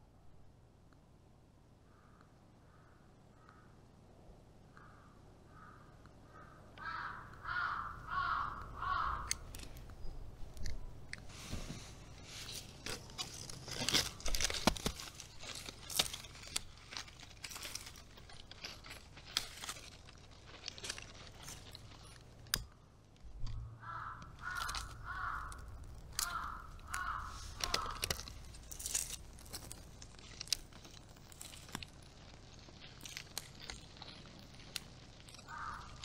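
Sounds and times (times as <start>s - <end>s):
crow cawing: 1.9s - 3.8s, 4.7s - 9.6s, 23.6s - 28.4s, 35.4s - 36.0s
dry material crackling: 6.8s - 36.0s.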